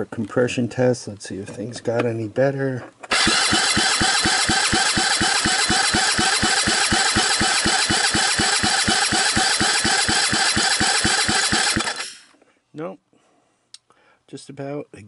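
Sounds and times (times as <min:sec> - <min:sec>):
engine compression strokes: 0:03.1 - 0:12.3
starter motor whine: 0:03.1 - 0:12.3.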